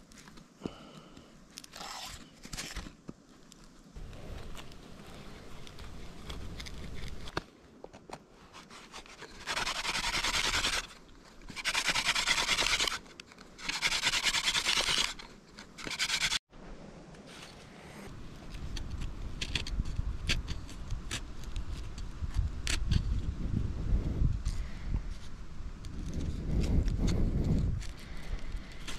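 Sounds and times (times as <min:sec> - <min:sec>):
stalk rubbing on wooden board: 0:08.4 - 0:16.4.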